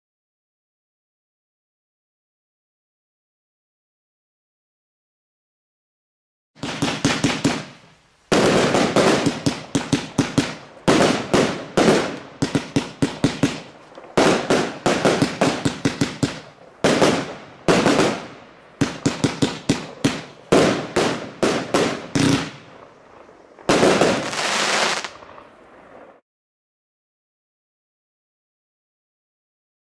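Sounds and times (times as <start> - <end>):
fireworks cake firing: 6.6 - 26.2.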